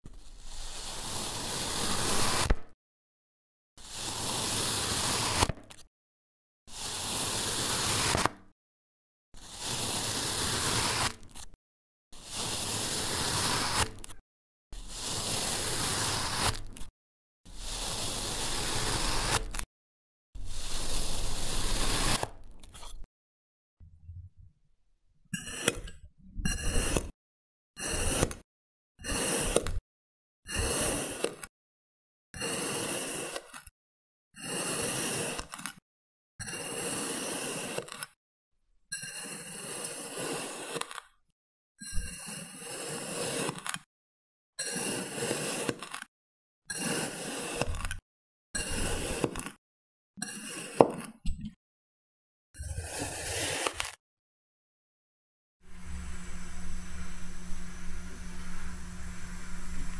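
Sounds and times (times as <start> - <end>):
knife slicing soft block: 0.1 - 2.7, 3.9 - 5.8, 6.7 - 8.4, 9.4 - 11.5, 12.2 - 14.1, 14.8 - 16.8, 17.5 - 19.6, 20.4 - 23.1.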